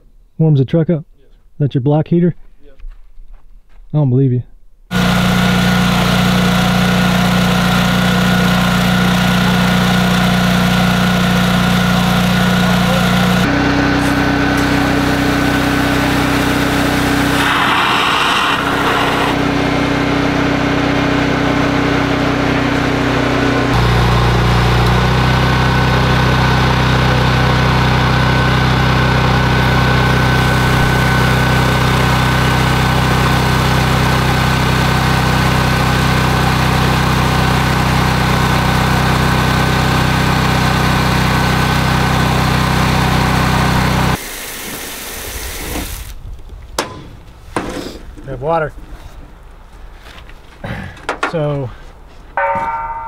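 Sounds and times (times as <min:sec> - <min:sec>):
engine humming: 0:04.9 - 0:44.2
water jetting from drain line: 0:14.5 - 0:19.4, 0:42.7 - 0:46.2.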